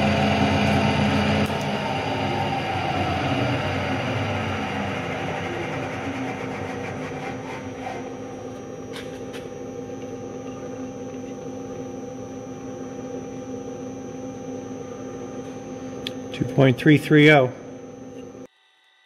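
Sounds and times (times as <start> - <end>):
machining noise: 0.0 - 11.4
milling machine humming: 0.0 - 18.8.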